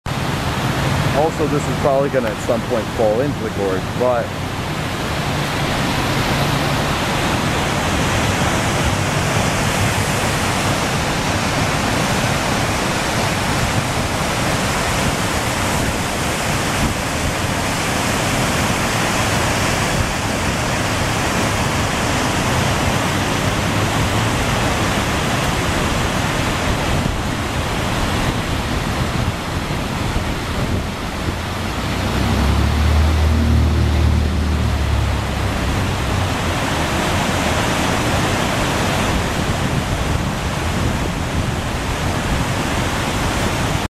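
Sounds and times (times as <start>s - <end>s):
waterfall rushing: 0.1s - 43.9s
low rumble: 30.8s - 36.6s.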